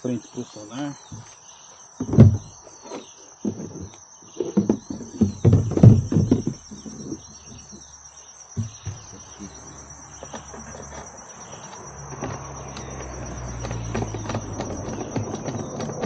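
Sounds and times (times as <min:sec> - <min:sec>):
insects chirring: 0:00.0 - 0:16.0
gear knocking on plastic kayak: 0:04.4 - 0:07.9, 0:08.6 - 0:16.0.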